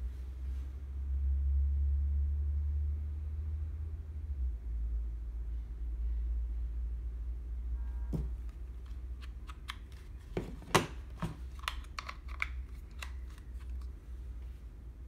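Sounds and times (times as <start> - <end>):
plastic clicks and clacks: 8.5 - 13.9.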